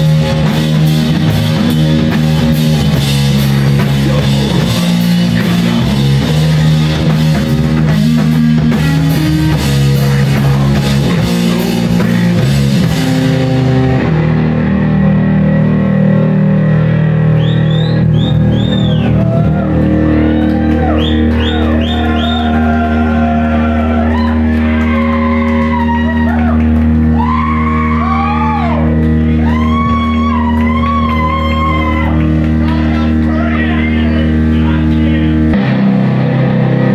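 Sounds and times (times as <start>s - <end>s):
drums and cymbals: 0.0s - 14.2s
distorted electric guitar: 0.0s - 36.9s
heavy rock band playing: 0.0s - 36.9s.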